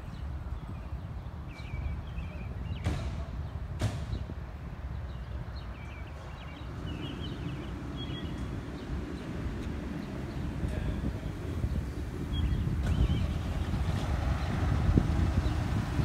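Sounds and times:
bird chirps: 5.1s - 9.3s.

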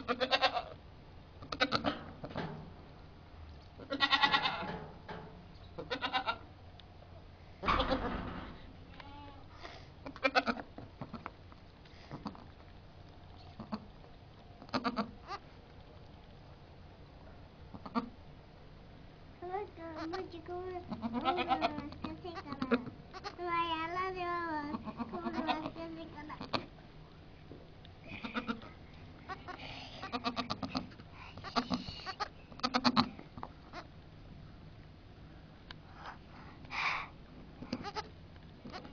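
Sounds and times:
goat bleating: 0.1s - 0.7s, 3.8s - 4.7s, 5.8s - 6.4s, 20.9s - 23.4s, 24.7s - 25.7s, 28.1s - 28.7s, 29.3s - 33.8s, 37.7s - 38.9s
goats bleating: 3.9s - 4.6s, 5.8s - 6.4s, 21.0s - 21.8s.

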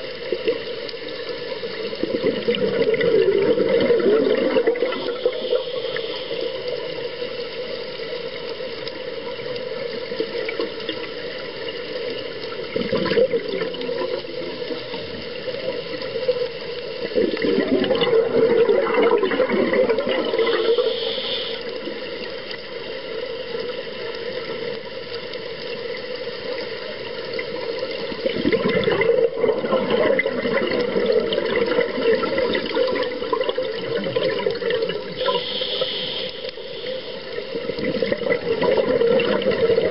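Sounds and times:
underwater rushing water: 0.0s - 39.9s
exhaled breath bubbling: 2.0s - 6.6s, 17.1s - 21.7s, 28.2s - 39.9s.

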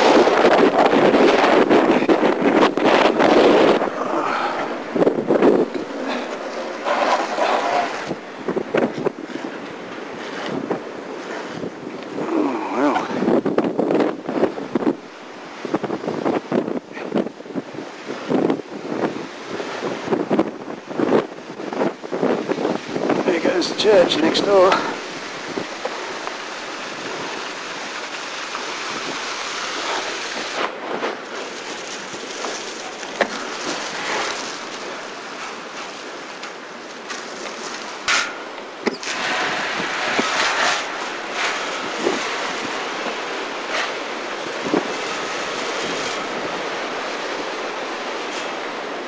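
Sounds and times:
fire cracking sharply: 0.0s - 8.4s
roar of wind and flame: 0.0s - 49.0s.

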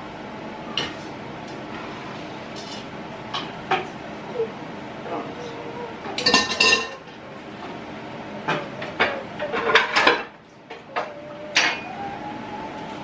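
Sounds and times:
kitchenware clinking and clattering: 6.1s - 7.2s, 8.4s - 12.0s.

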